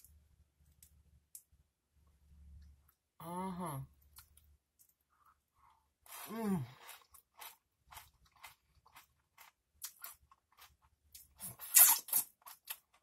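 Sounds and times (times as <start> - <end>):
chewing crunchy chips: 6.1 - 13.0.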